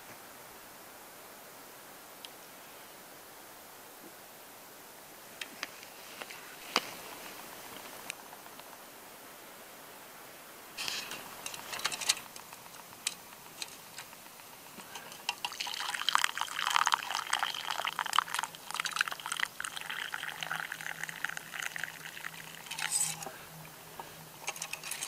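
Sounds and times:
drink pouring into wooden bowl: 14.8 - 23.3.

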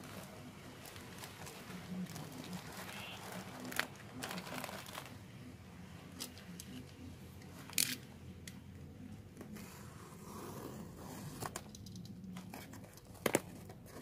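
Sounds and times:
plastic wrap crinkling: 0.0 - 5.2.

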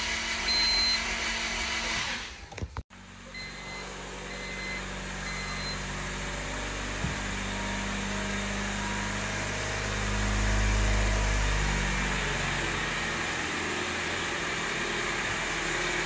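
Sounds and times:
short electronic beeps: 0.5 - 1.0, 3.3 - 5.8.

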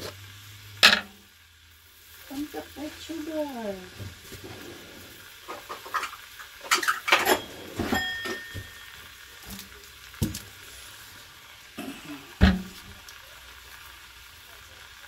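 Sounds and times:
metal utensils clinking on pots: 0.8 - 1.2, 5.5 - 10.4.

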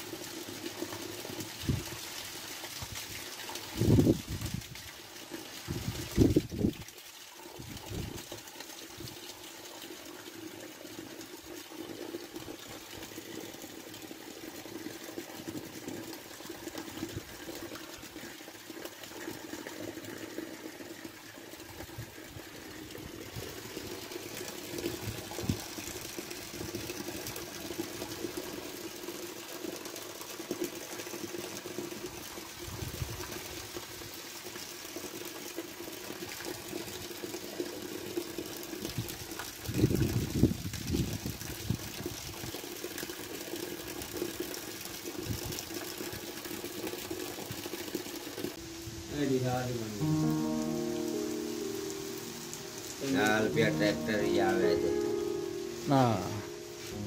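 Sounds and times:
steady rain falling: 0.0 - 57.0
water running over ground: 0.0 - 57.0.

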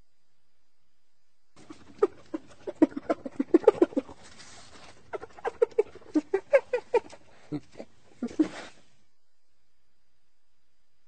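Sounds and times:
cartoon hyenas cackling: 1.6 - 8.8.

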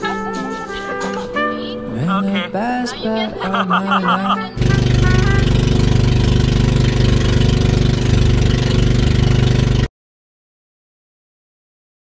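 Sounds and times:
boat engine running: 3.8 - 9.9.

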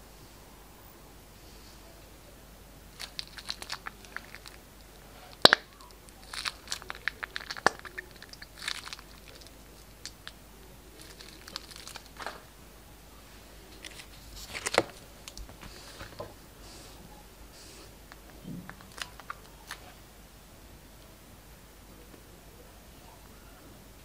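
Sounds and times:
plastic piping bag crinkling: 2.9 - 12.6, 13.6 - 16.4, 17.9 - 20.0
slime clicks and pops: 5.4 - 5.7.

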